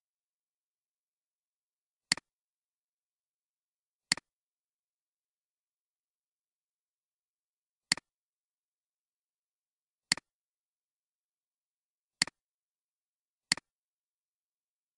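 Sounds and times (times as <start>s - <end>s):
computer mouse clicks: 2.1s - 2.3s, 7.9s - 8.1s, 10.1s - 10.3s, 13.5s - 13.7s.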